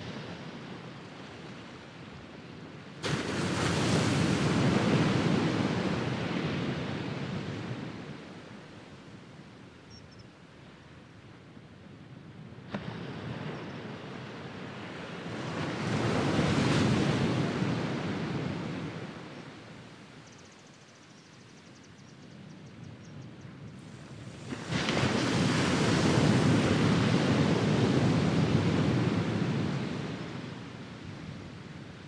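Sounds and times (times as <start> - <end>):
waves washing on sand: 0.0 - 9.2, 12.6 - 20.2, 23.8 - 32.0
wave crashing: 3.0 - 7.2.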